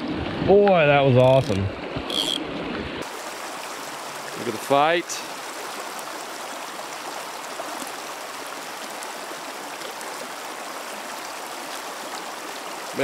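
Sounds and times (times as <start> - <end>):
stream rushing over rocks: 3.0 - 13.0.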